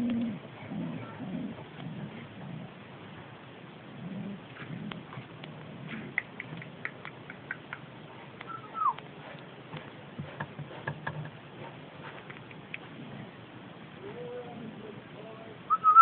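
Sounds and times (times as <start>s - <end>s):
pigeons cooing: 0.0s - 2.8s, 8.5s - 9.0s.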